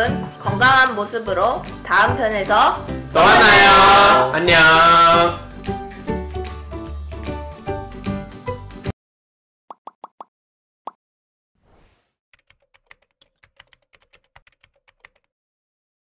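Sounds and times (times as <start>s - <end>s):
background music: 0.0s - 8.9s
rapid keyboard typing clicks: 12.4s - 15.3s.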